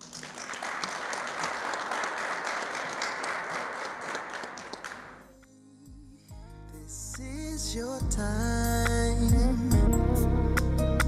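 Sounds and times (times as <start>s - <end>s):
crowd applauding: 0.0s - 5.3s
soft music: 5.2s - 11.0s.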